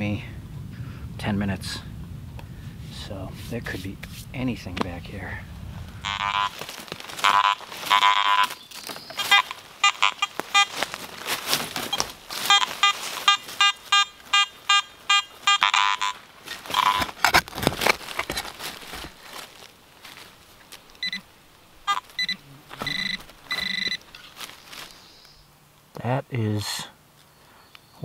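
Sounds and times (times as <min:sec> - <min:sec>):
metal detector beeping: 0:06.0 - 0:06.6, 0:07.2 - 0:08.6, 0:09.2 - 0:10.9, 0:11.8 - 0:17.2, 0:21.0 - 0:21.2, 0:21.9 - 0:24.2.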